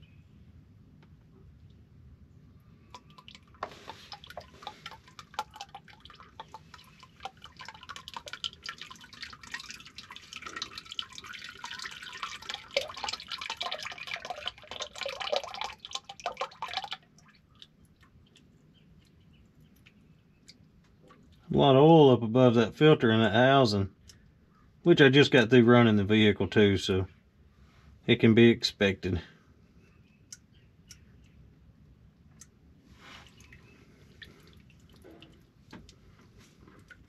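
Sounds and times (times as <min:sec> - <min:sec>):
oil pouring into plastic pan: 0:03.0 - 0:17.2.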